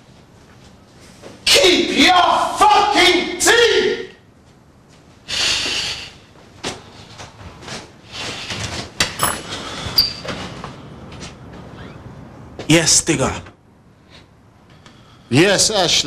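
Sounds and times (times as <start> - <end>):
person moving through a room: 0.0 - 1.5, 4.3 - 12.8.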